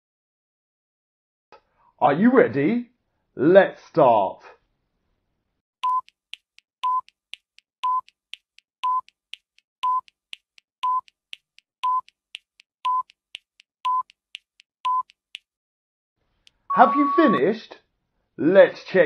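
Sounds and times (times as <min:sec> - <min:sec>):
short electronic beeps: 0:12.9 - 0:13.2, 0:13.9 - 0:14.1, 0:14.9 - 0:15.1, 0:16.7 - 0:17.5.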